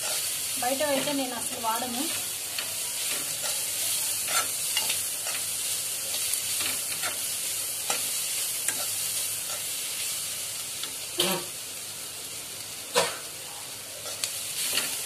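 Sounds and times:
onions sizzling in a pan: 0:00.0 - 0:15.0
metal spatula scraping a pan: 0:03.0 - 0:05.4, 0:06.6 - 0:07.3.

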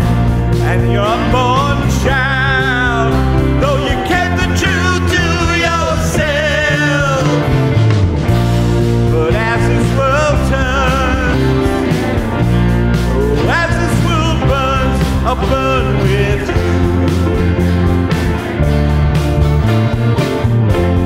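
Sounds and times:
person singing over band: 0:00.5 - 0:07.7, 0:09.1 - 0:12.1, 0:13.1 - 0:17.2.

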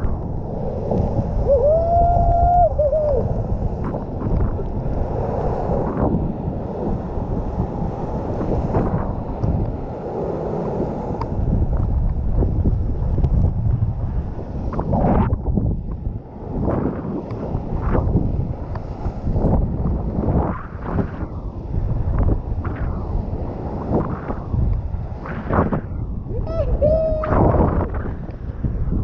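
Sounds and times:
water rushing under board: 0:00.0 - 0:29.0
wind buffeting microphone: 0:00.0 - 0:29.0.

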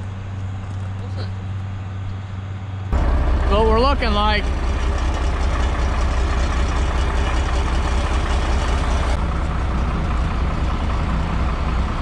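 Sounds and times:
diesel tractor engine idling: 0:02.6 - 0:12.0.

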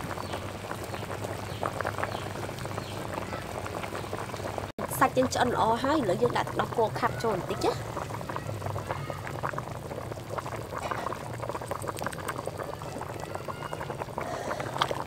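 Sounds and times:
stew bubbling and popping: 0:00.0 - 0:15.0
liquid pouring: 0:07.4 - 0:15.0.

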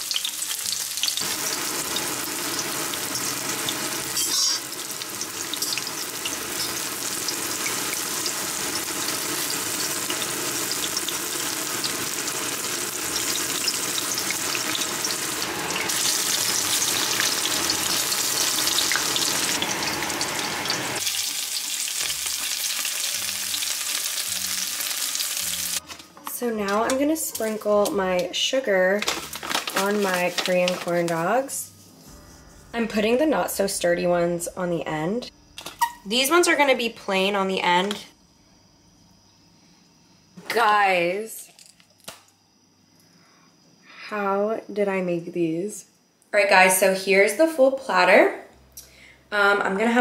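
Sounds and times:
oil sizzling in a frying pan: 0:00.0 - 0:25.9, 0:29.1 - 0:31.4.

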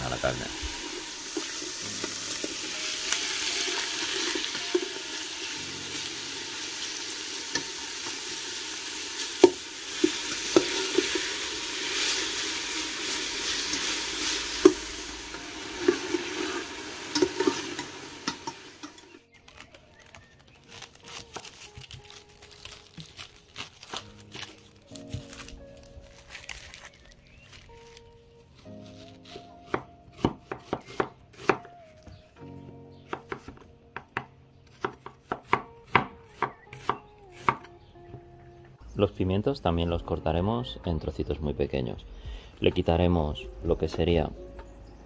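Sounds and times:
meat sizzling in oil: 0:00.0 - 0:19.2
metal spoon scraping pot: 0:15.7 - 0:19.2
knife peeling onion on board: 0:28.8 - 0:31.7.

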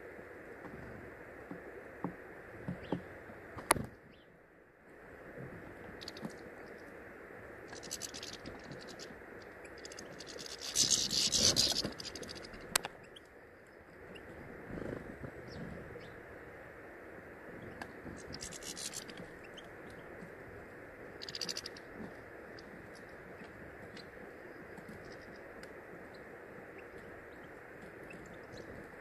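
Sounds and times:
birds pecking through seeds: 0:05.7 - 0:16.1, 0:17.6 - 0:29.0.

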